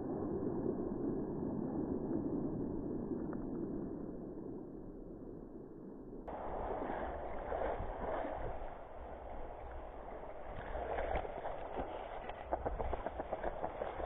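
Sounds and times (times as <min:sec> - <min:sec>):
wind rumble on microphone: 0:00.0 - 0:14.0
water sloshing and splashing: 0:06.3 - 0:14.0
small splashes or clicks: 0:09.4 - 0:14.0.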